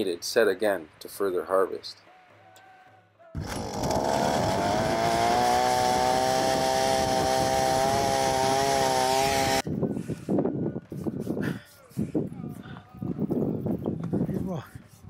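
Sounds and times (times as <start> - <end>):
ice auger drilling through ice: 3.4 - 9.6.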